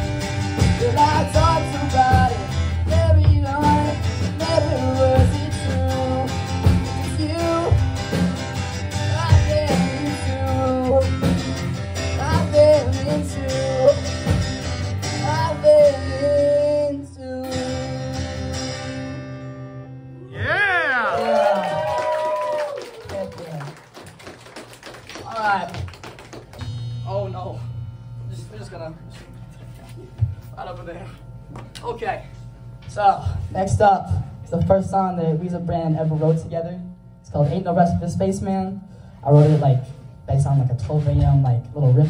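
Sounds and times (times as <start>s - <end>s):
drums: 0.0s - 19.2s, 20.4s - 30.7s, 32.8s - 42.0s
strummed acoustic guitar: 0.0s - 20.2s
electric bass: 0.0s - 21.1s, 26.5s - 31.4s
person singing: 0.8s - 7.9s.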